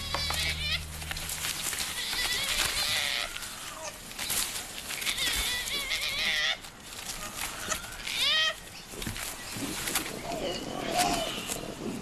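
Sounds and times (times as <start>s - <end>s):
koalas screaming: 0.0s - 8.7s.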